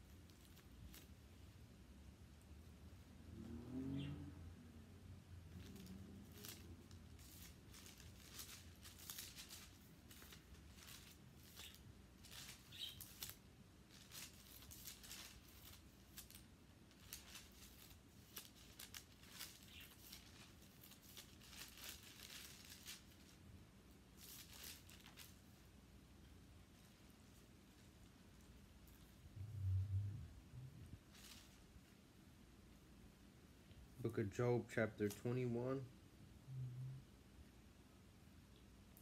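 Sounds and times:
thin paper pages turning: 5.5s - 23.4s, 24.1s - 25.5s, 31.1s - 31.7s.

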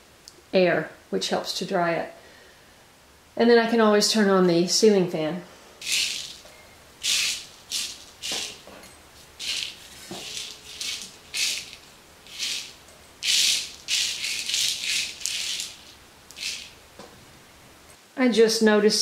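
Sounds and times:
dried peas rattling on metal pan: 5.8s - 16.8s.

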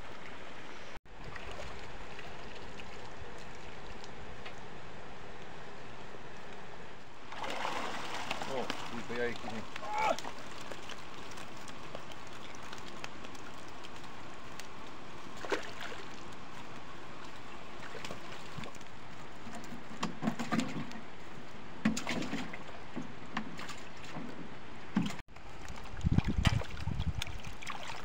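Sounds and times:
flowing water: 0.0s - 28.0s
nets splashing in water: 7.3s - 16.6s, 25.4s - 28.0s.

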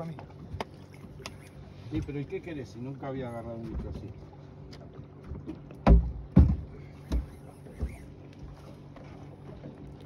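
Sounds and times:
fishing boat engine hum: 0.0s - 10.0s
loud dull thumps: 5.8s - 7.3s.

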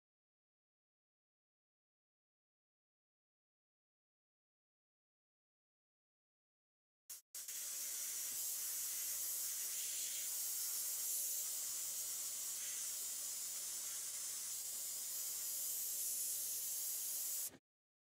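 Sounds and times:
airbrush spraying hiss: 7.1s - 17.5s.

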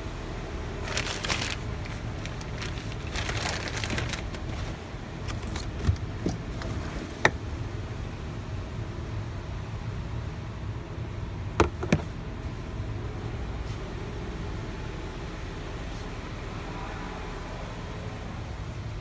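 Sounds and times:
steady low rumble: 0.0s - 19.0s
plastic bag crinkling: 0.8s - 6.2s.

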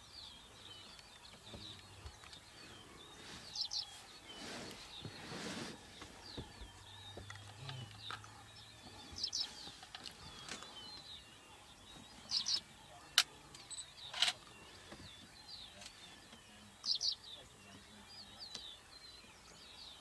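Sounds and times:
birds singing and calling: 0.0s - 20.0s.

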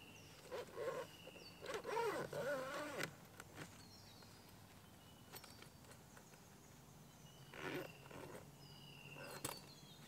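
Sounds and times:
tent clicks and knocks: 0.4s - 6.4s.

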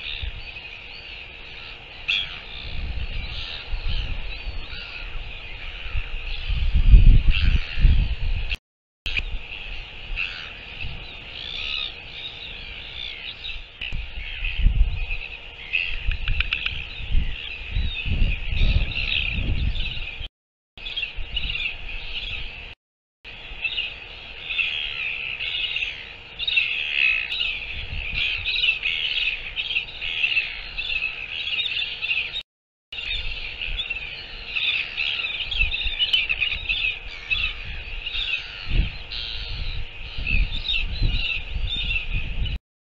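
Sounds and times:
small birds chirping: 0.0s - 32.4s, 33.0s - 42.6s
wind buffeting microphone: 2.2s - 11.9s, 13.4s - 22.7s, 27.4s - 29.5s, 35.0s - 42.6s.

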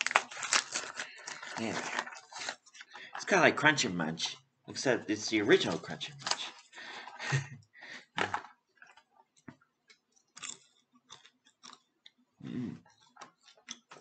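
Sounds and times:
person chewing crunchy popcorn: 0.0s - 3.1s, 9.9s - 13.9s.

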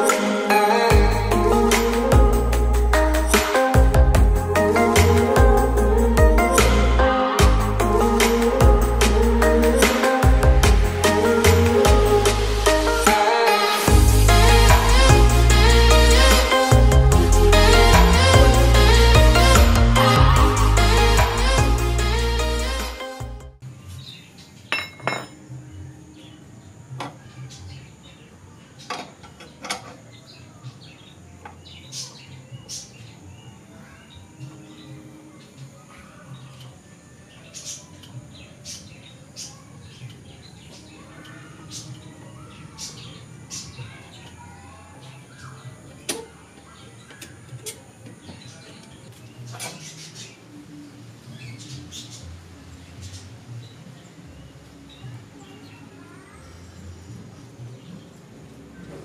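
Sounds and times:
faint birds chirping: 23.6s - 59.0s.

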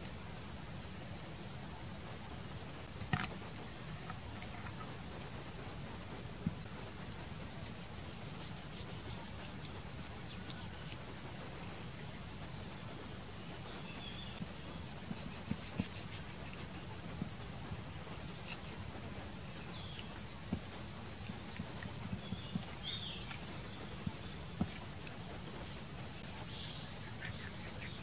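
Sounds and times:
insects chirring: 0.0s - 28.0s
bird chirps: 26.2s - 28.0s.

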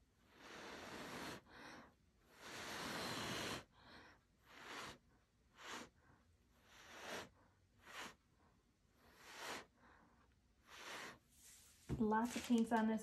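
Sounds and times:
person blowing breathy puffs: 0.2s - 6.0s, 6.6s - 8.4s, 9.0s - 11.6s.

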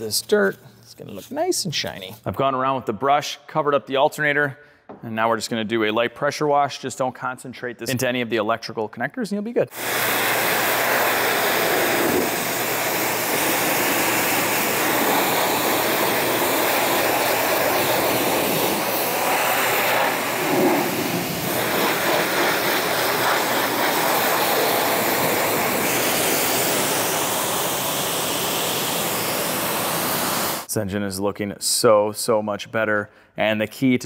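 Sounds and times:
pressure washer spraying water: 9.8s - 30.7s.

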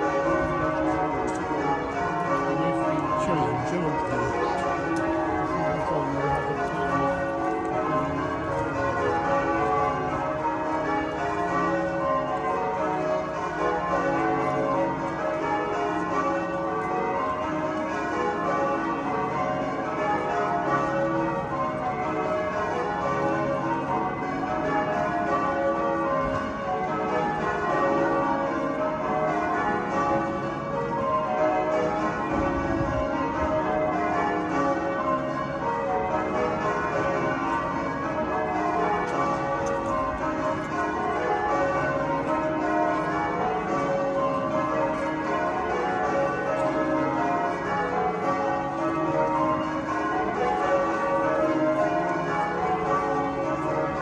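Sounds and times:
church bells pealing: 0.0s - 54.0s.

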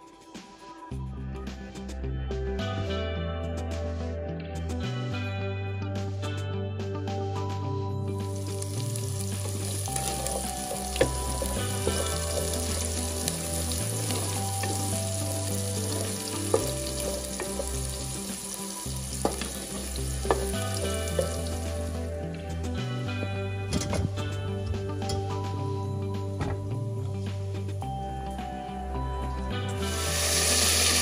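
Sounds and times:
background music with bass: 0.0s - 31.0s
food sizzling in oil: 8.2s - 22.1s, 29.7s - 31.0s.

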